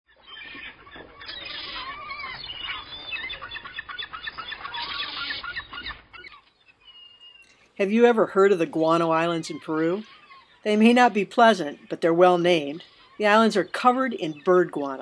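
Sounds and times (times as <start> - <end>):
seabirds calling: 0.1 - 15.0.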